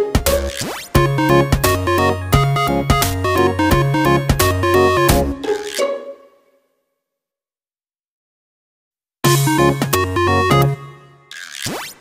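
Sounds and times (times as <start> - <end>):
electronic music with steady beat: 0.0 - 5.9.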